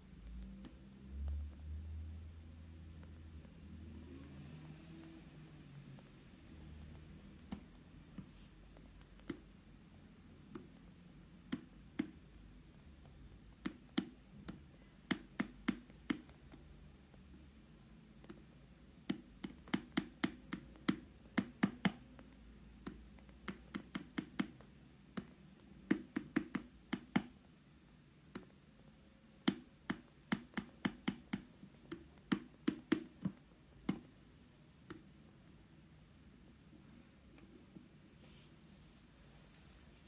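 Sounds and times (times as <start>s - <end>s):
stylus tapping on touchscreen: 6.8s - 17.5s, 18.2s - 27.4s, 28.2s - 28.7s, 29.3s - 34.2s, 34.8s - 35.6s.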